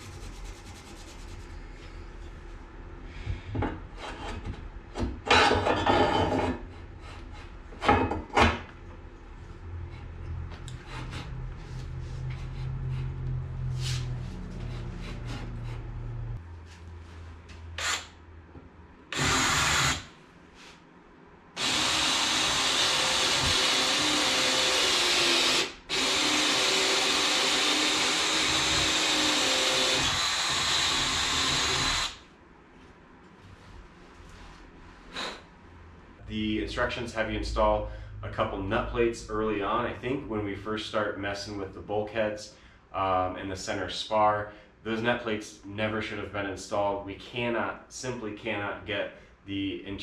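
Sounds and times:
cordless drill drilling steel: 17.8s - 18.1s, 19.1s - 20.1s, 21.6s - 32.2s.

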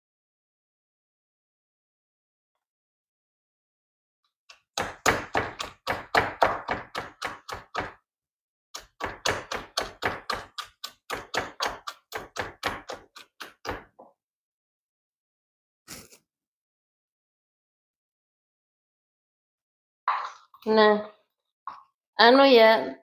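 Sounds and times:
wooden pestle pounding in mortar: 4.5s - 8.0s, 8.8s - 14.0s.

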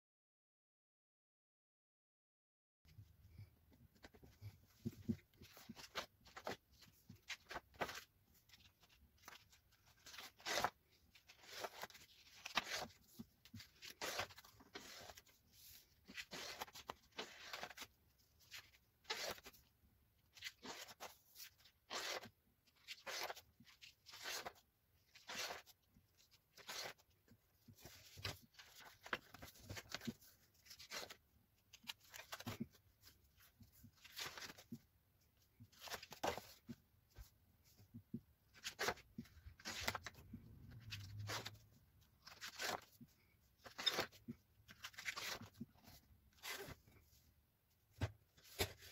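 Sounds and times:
sketchbook pages rustling: 3.3s - 48.9s.

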